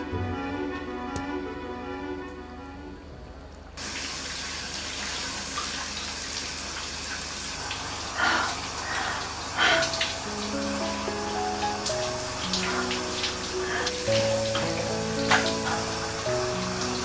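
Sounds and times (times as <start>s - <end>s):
shower water pouring onto tiles: 3.8s - 17.0s
woman sobbing: 9.6s - 10.1s.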